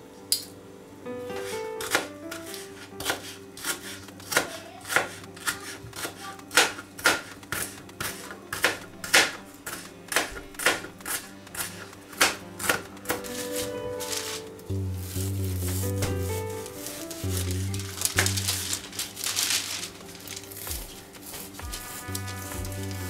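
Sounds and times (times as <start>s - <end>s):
knife chopping on plastic board: 1.8s - 13.7s.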